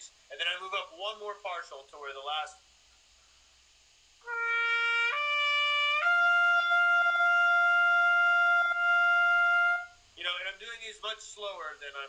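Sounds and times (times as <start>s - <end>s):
trumpet lip slur and long tone: 4.2s - 10.0s.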